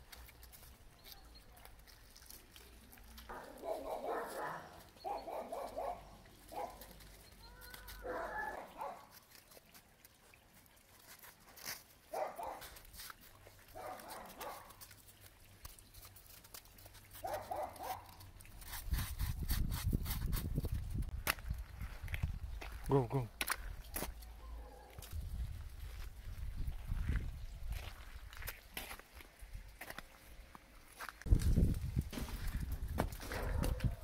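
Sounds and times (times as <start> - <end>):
dogs vocalising: 3.3 - 6.9.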